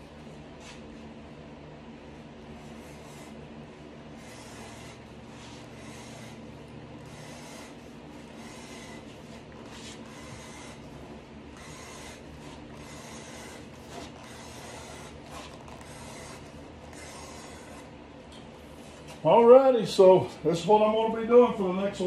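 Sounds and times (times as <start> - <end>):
blade cutting leather: 4.1 - 17.9.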